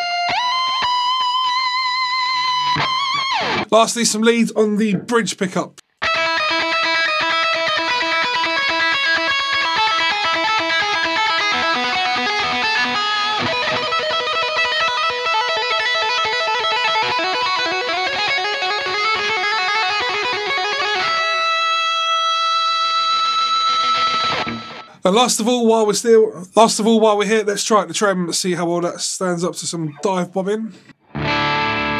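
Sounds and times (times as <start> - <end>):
electric guitar lead: 0.0 - 3.7, 6.0 - 25.0, 29.9 - 30.3, 30.9 - 31.9.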